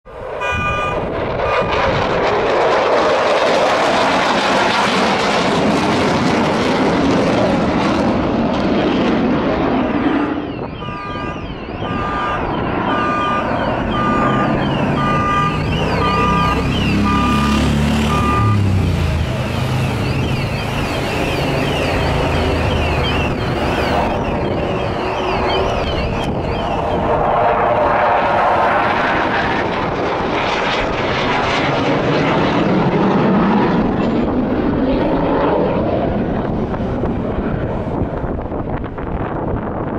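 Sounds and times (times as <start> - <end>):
jet engine roaring overhead: 0.0 - 39.9
short high electronic beep: 0.4 - 1.0, 10.8 - 17.5, 18.1 - 18.7.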